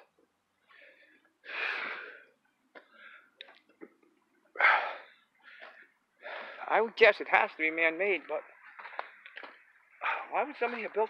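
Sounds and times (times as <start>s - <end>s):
man breathing hard: 0.6s - 3.4s, 4.5s - 6.7s.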